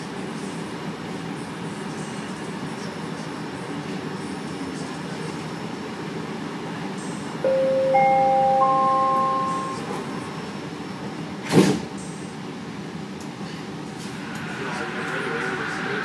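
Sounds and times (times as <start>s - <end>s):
train humming: 6.5s - 16.0s
rising door-closing chime: 7.5s - 10.2s
train doors shutting thump: 11.4s - 11.9s.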